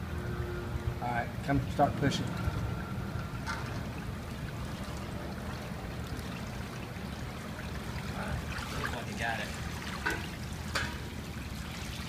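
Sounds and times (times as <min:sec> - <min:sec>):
water sloshing and trickling: 0:00.0 - 0:12.0.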